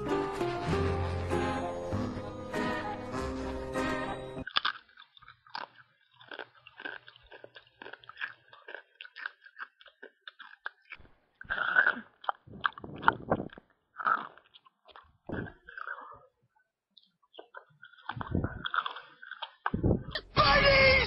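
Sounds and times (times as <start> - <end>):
noisy chewing and crunching: 0.0 - 20.3.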